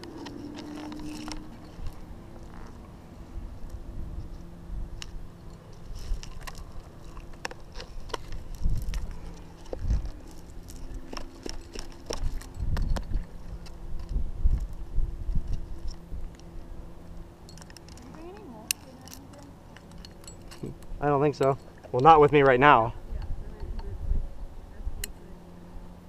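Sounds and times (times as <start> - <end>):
climbing gear clinking and rattling: 0.0 - 2.9, 5.4 - 14.8, 17.4 - 22.8.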